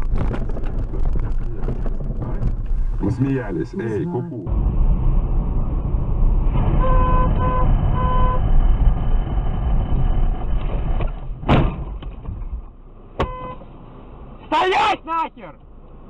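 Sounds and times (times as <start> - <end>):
car rumbling on snowy road: 0.0 - 16.0
car horn honking: 6.7 - 8.5, 13.2 - 13.6
sharp thump: 11.0 - 12.5.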